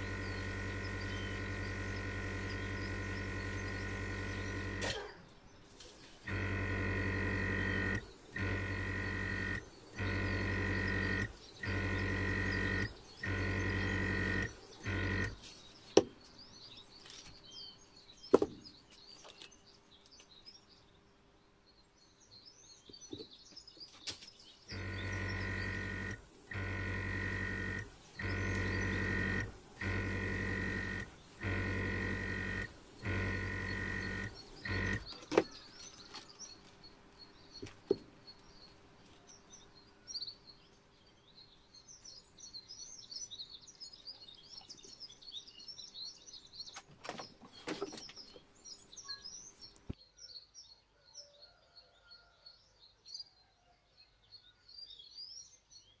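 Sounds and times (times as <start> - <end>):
blow-dryer blasts: 0.0 - 5.2, 6.0 - 15.4, 24.7 - 35.2
birds chirping: 0.0 - 53.3.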